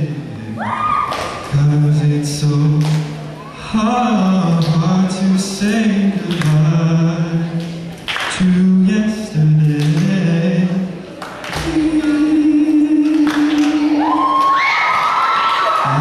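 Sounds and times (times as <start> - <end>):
young man singing: 0.0 - 14.5, 15.8 - 16.0.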